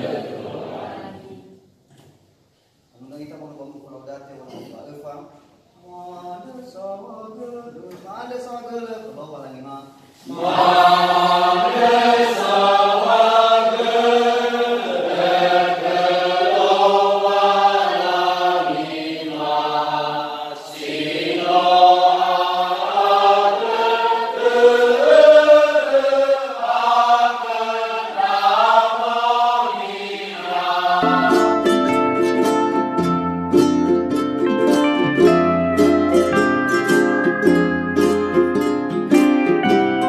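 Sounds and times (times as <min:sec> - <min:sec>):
congregation singing a hymn: 0:00.0 - 0:01.7, 0:10.1 - 0:33.3.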